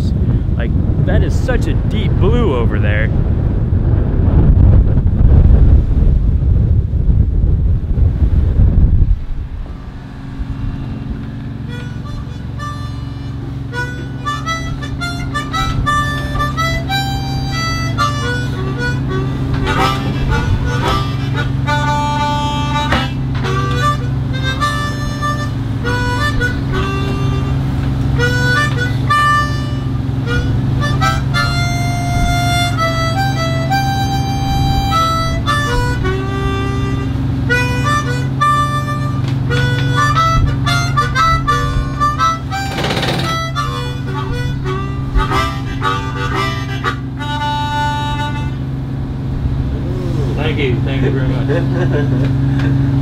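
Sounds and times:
steady low hum: 0.0s - 53.0s
harmonica playing slow melody: 9.8s - 51.6s.

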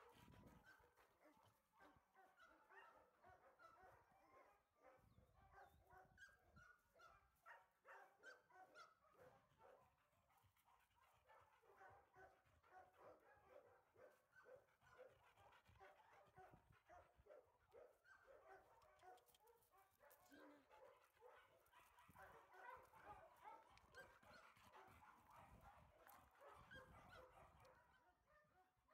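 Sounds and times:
dog yips and whines: 26.5s - 27.3s.

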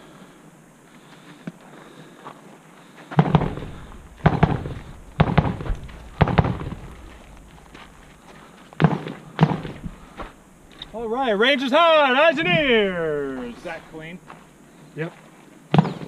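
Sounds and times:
rifle shots with echo: 3.2s - 8.2s, 8.8s - 10.1s.

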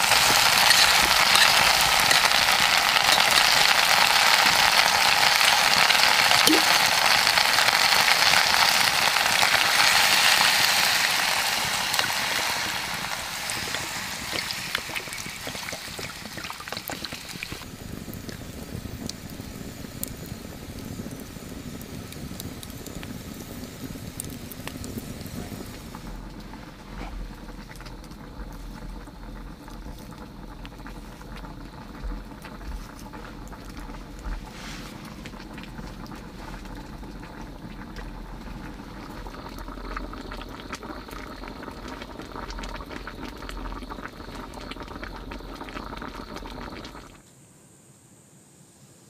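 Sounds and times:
insect chirring: 0.0s - 9.6s, 10.3s - 25.0s, 35.4s - 47.4s
wood fire crackling: 0.0s - 47.2s.

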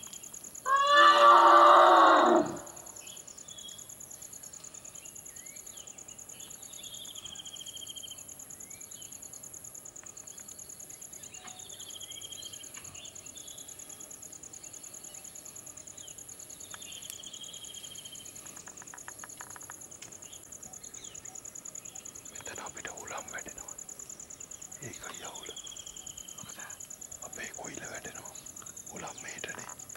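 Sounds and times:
insects trilling: 0.0s - 29.9s
bird chirps: 10.3s - 13.8s.

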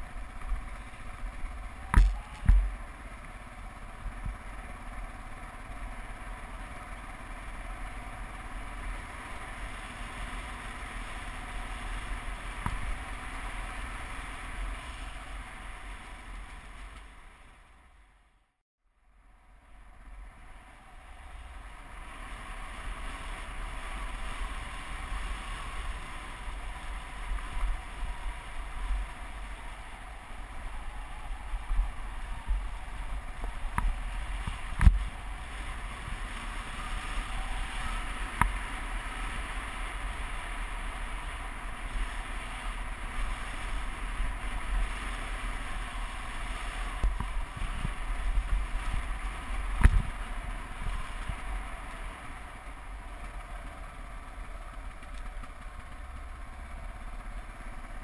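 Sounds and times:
motorcycle rumble: 0.0s - 58.0s
sharp knock: 2.0s - 2.7s
wind rushing over microphone: 20.9s - 52.1s.

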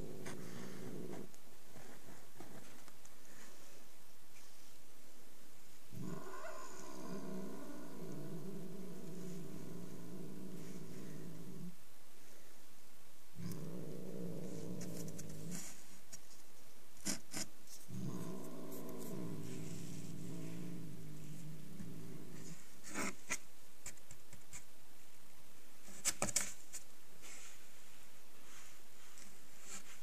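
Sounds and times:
cat growling: 0.0s - 2.1s, 5.9s - 11.8s, 13.4s - 15.9s, 17.0s - 23.4s.

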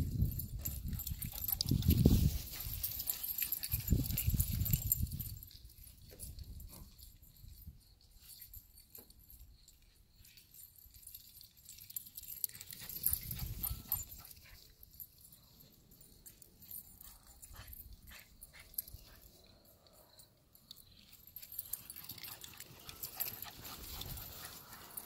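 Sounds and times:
scattered clicks and rustles: 8.2s - 25.0s.

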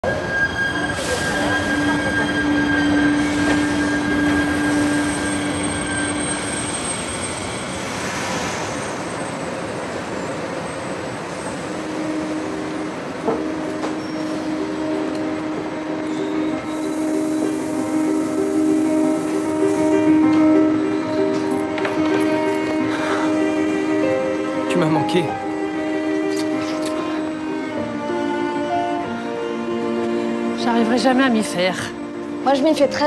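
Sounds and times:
high-pitched brake squeal: 0.0s - 11.9s, 13.8s - 15.0s, 16.0s - 21.7s.

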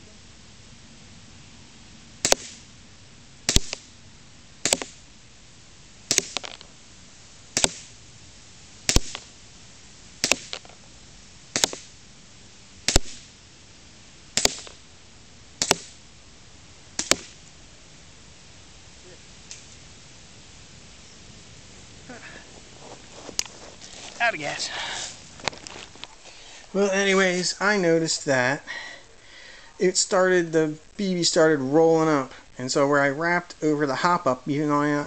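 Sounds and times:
airsoft pistol shots: 2.2s - 2.6s, 3.5s - 3.9s, 4.6s - 5.0s, 6.1s - 6.6s, 7.6s - 7.9s, 8.9s - 9.3s, 10.2s - 10.6s, 11.5s - 11.9s, 12.9s - 13.3s, 14.4s - 14.8s, 15.6s - 16.0s, 17.0s - 17.4s.

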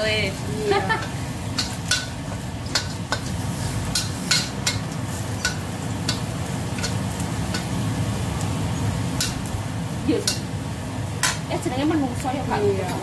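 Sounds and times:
garlic sizzling in oil: 0.0s - 13.0s
ladle scraping metal wok: 0.2s - 7.8s.

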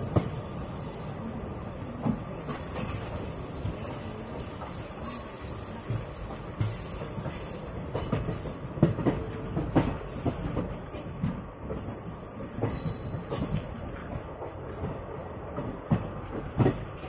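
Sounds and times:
train rumble inside coach: 0.0s - 17.0s.

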